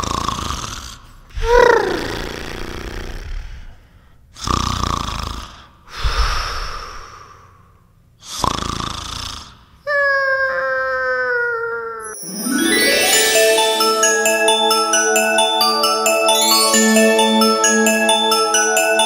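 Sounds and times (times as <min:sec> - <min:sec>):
chiming bell-like music: 0:12.0 - 0:19.0.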